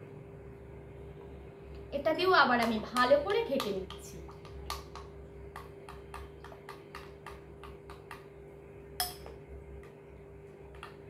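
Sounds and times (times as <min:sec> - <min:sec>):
spoon clinking glass bowl: 0:09.0 - 0:09.4.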